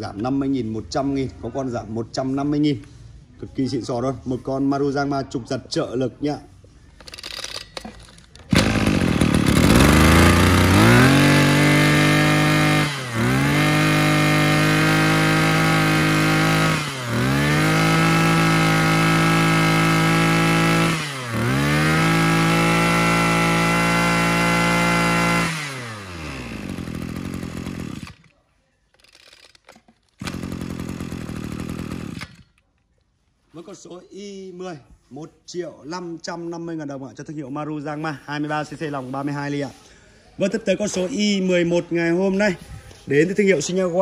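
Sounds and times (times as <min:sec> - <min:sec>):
brush cutter engine revving: 0:07.1 - 0:28.3, 0:29.0 - 0:32.6.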